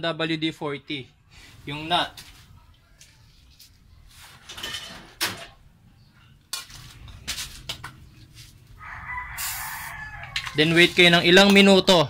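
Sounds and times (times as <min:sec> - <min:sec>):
aerosol can spraying: 0:09.4 - 0:10.0.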